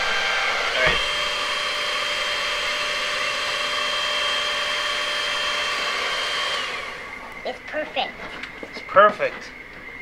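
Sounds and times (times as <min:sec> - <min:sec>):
hair dryer running: 0:00.0 - 0:07.2.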